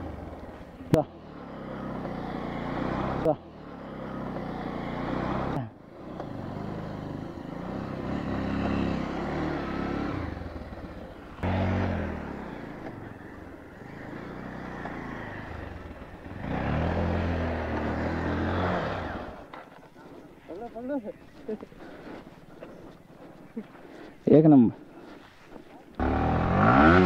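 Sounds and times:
motorcycle engine revving hard: 1.3s - 19.5s, 26.0s - 27.0s.

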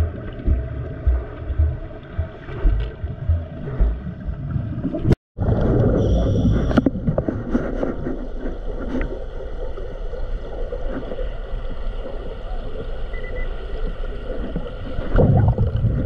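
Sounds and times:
low underwater burst: 0.0s - 9.0s, 14.5s - 16.0s
underwater low rumble: 0.0s - 16.0s
underwater rustling and ticks: 0.0s - 16.0s.

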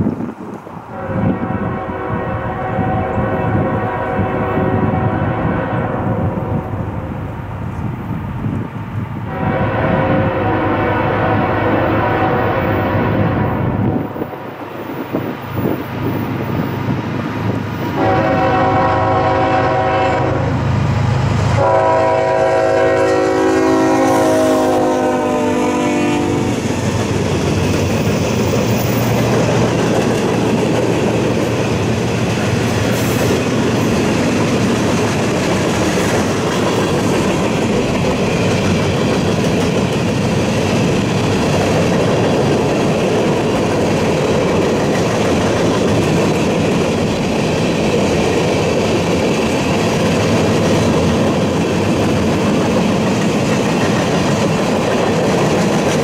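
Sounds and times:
train wheels rumbling: 0.0s - 56.0s
locomotive air horn blasts: 0.9s - 6.7s, 9.3s - 14.1s, 17.9s - 20.6s, 21.6s - 26.6s
clickety-clack over rail joints: 26.4s - 56.0s.

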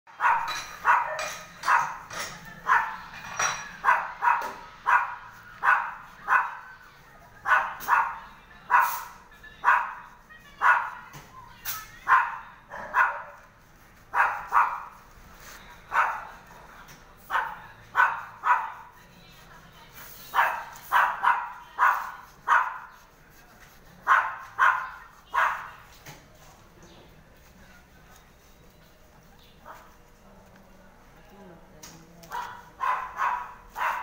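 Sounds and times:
dog barking: 0.1s - 2.0s, 2.6s - 3.0s, 3.8s - 6.7s, 7.4s - 11.0s, 12.0s - 13.4s, 14.1s - 15.0s, 15.9s - 16.4s, 17.3s - 18.9s, 20.3s - 23.0s, 24.0s - 25.8s, 32.3s - 34.0s.

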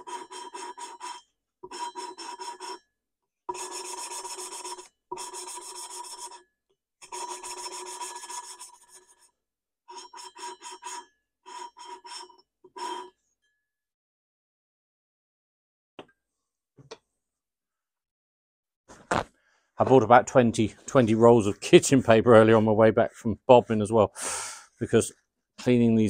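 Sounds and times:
gritty rasping of valve lapping: 0.0s - 2.8s, 3.5s - 6.4s, 7.0s - 9.2s, 9.9s - 13.2s.

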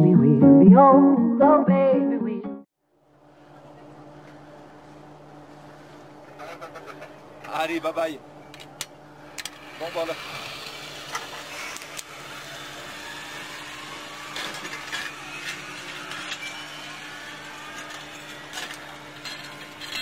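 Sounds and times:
zipline trolley whirring on cable: 9.2s - 20.0s.

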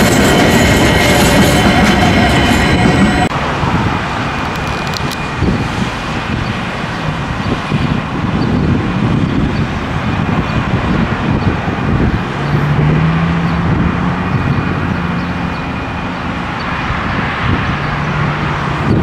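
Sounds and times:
road traffic: 0.0s - 19.0s
wind buffeting microphone: 0.0s - 19.0s.

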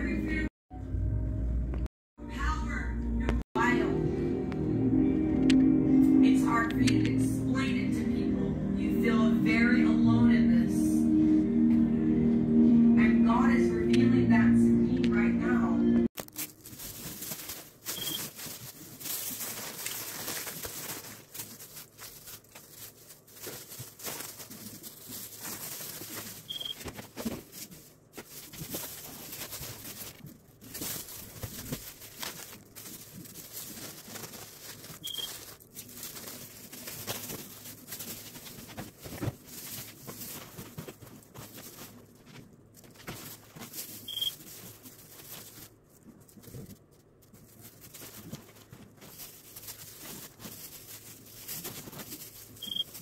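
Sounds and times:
plastic bag crinkling: 16.2s - 53.0s.

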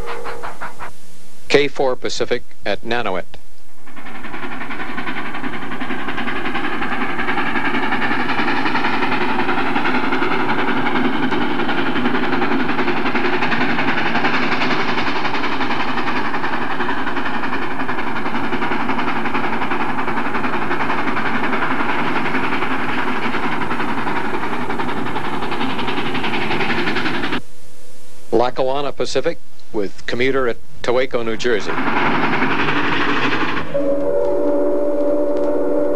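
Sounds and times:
train wheel and rail noise: 0.0s - 27.4s, 28.4s - 35.9s.

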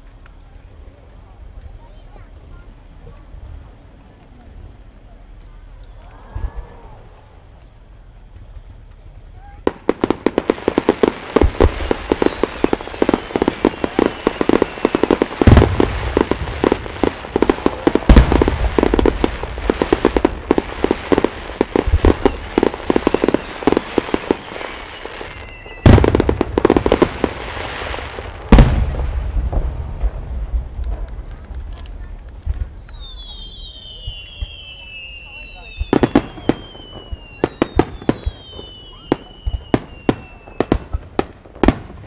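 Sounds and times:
heavy firework booms: 9.5s - 42.0s
fireworks rapid bangs: 9.7s - 42.0s.

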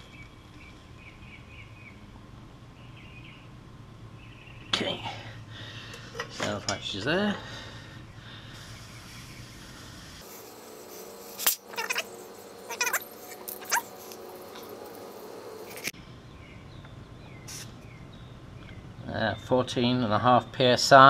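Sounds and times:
gas hissing through inflator: 8.4s - 14.3s, 17.5s - 17.8s
short squeals: 11.5s - 14.1s.

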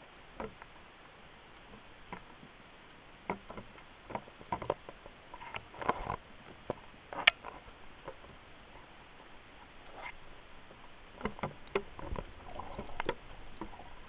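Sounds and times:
low background hiss: 0.0s - 14.0s
underwater clicks and taps: 11.2s - 13.8s.

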